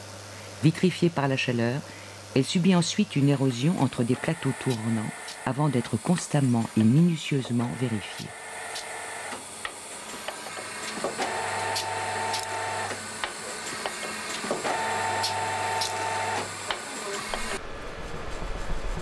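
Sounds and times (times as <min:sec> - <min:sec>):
motor whirring: 0:04.1 - 0:05.9, 0:14.4 - 0:19.0
machine low rumble: 0:17.3 - 0:19.0.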